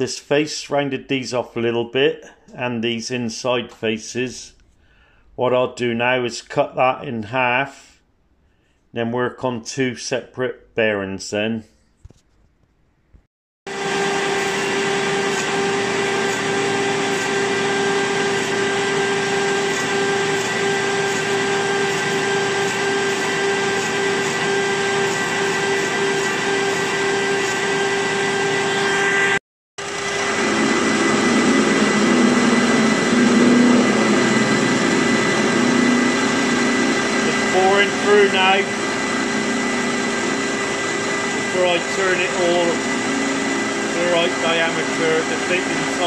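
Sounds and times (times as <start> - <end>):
lathe drilling with low hum: 13.7 - 46.0
metal lathe cutting with whine: 13.7 - 46.0.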